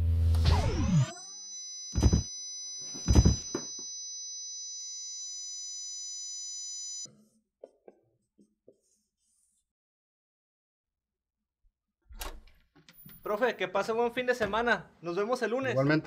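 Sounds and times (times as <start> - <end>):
high-pitched ringing tone: 0.9 - 7.1.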